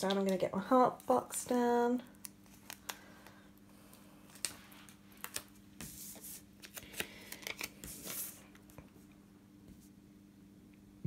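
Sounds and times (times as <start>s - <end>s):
paper rustling: 4.3s - 8.8s.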